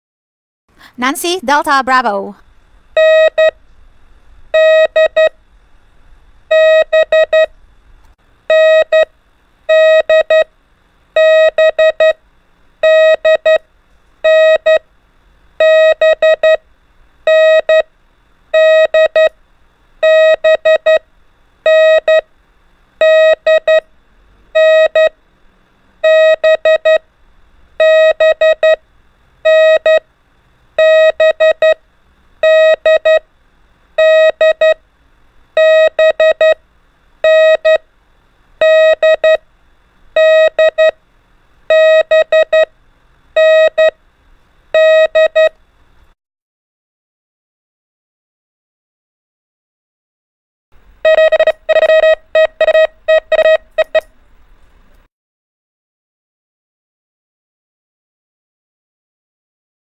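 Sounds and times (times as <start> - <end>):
morse code beeps: 3.0 - 3.6, 4.6 - 5.3, 6.5 - 7.5, 8.5 - 9.1, 9.7 - 10.5, 11.2 - 12.2, 12.8 - 13.6, 14.2 - 14.8, 15.6 - 16.6, 17.3 - 17.8, 18.6 - 19.3, 20.0 - 21.0, 21.7 - 22.2, 23.0 - 23.8, 24.6 - 25.1, 26.0 - 27.0, 27.8 - 28.8, 29.5 - 30.0, 30.8 - 31.8, 32.4 - 33.2, 34.0 - 34.8, 35.6 - 36.6, 37.2 - 37.8, 38.6 - 39.4, 40.2 - 41.0, 41.7 - 42.7, 43.4 - 44.0, 44.8 - 45.5, 51.0 - 54.1.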